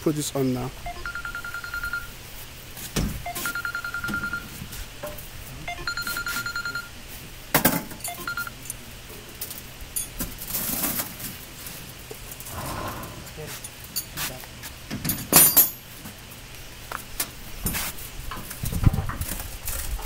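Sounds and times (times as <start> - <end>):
fast high pulsing beep: 0.9 - 2.0, 5.7 - 6.9.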